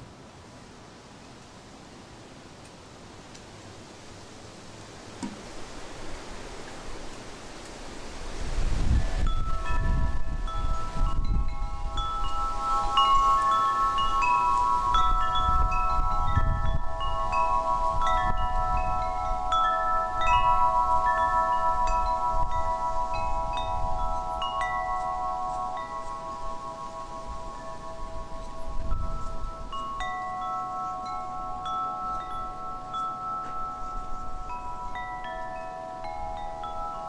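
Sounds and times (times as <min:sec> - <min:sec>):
wind chimes ringing: 0:08.5 - 0:37.0.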